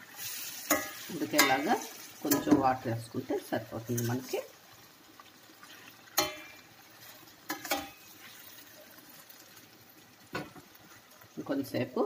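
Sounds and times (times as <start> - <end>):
faint sizzle: 0.0 - 12.0
spoon clinking on metal pan: 0.7 - 2.6, 6.2 - 6.6, 7.5 - 8.0.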